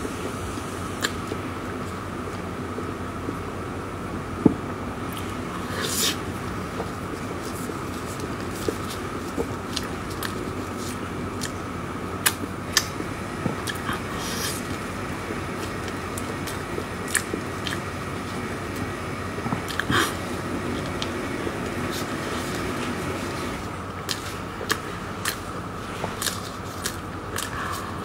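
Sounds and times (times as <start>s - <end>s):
faint hum: 0.0s - 28.0s
lip smacks: 1.0s - 1.3s
chewing and wet mouth sounds: 1.0s - 2.4s, 5.1s - 28.0s.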